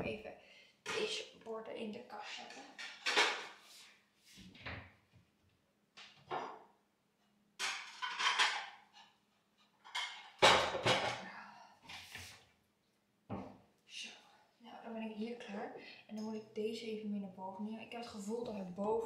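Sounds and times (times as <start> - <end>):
plates clattering: 2.7 - 3.6, 6.1 - 6.7, 7.6 - 11.2.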